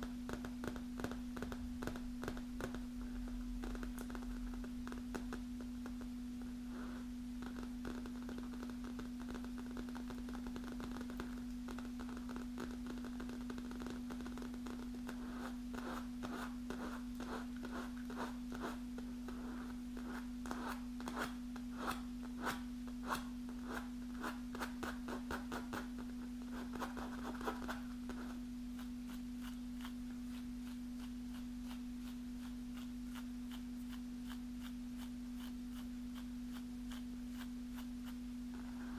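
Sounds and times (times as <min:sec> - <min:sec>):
fingernails tapping on a cushion: 0:00.2 - 0:06.1.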